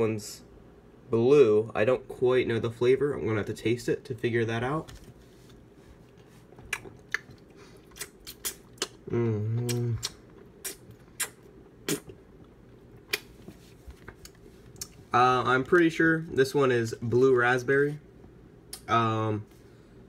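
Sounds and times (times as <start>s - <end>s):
mouth clicks and smacks: 6.6s - 13.5s, 14.1s - 15.0s
person humming: 9.1s - 10.1s.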